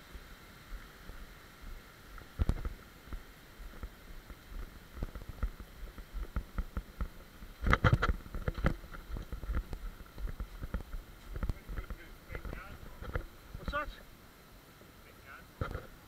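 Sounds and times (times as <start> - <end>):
mountain bike rattling on dirt trail: 3.7 - 13.3.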